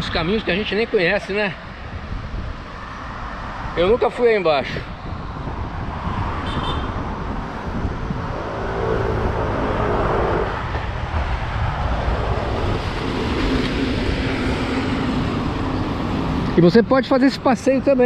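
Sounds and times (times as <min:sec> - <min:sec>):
road traffic rushing: 0:00.0 - 0:18.0
vehicle passing close by: 0:05.1 - 0:16.5.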